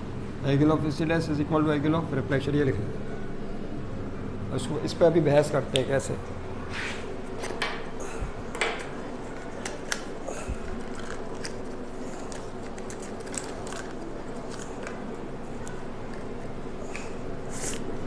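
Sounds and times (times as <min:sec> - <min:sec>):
steady room hum: 0:00.0 - 0:18.0
pens writing and paper rustling: 0:09.2 - 0:18.0.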